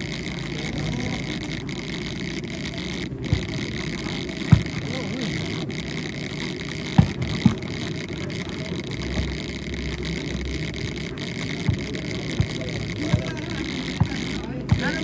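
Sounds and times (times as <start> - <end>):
volleyball being hit: 7.0 - 7.6, 11.6 - 13.4, 14.0 - 15.0.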